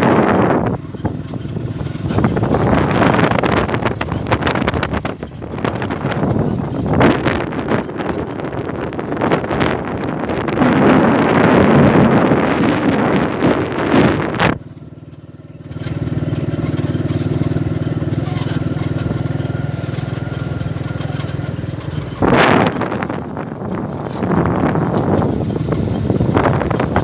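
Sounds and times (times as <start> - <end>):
engine humming: 0.0 - 27.0
wind buffeting microphone: 0.0 - 27.0.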